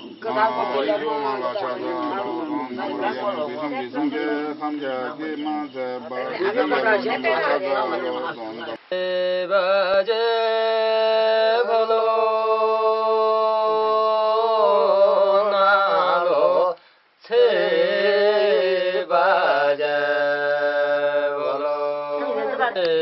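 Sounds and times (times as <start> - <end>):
man chanting in long notes: 0.0 - 16.7.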